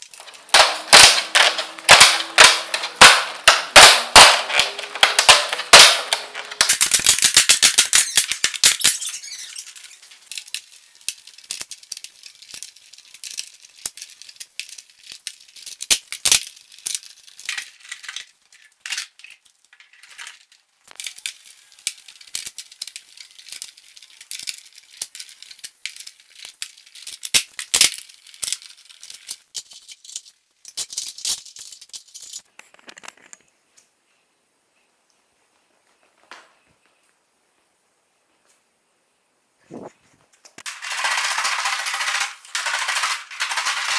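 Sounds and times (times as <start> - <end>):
clamps clicking and rattling: 0.0 - 33.2.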